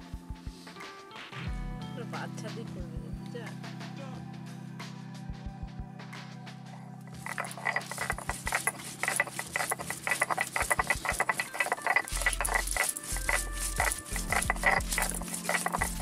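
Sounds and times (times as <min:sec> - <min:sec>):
stone grinding on stone: 0:07.2 - 0:16.0.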